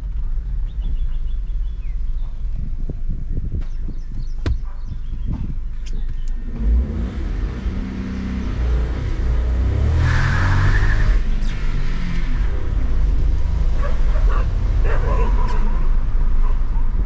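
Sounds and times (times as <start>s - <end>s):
car engine accelerating: 5.1s - 17.0s.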